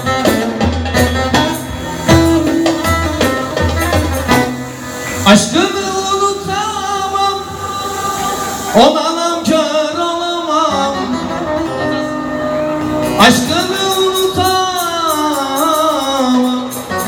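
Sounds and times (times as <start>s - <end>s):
live band with saz: 0.0s - 17.0s
man singing into a microphone: 5.1s - 17.0s.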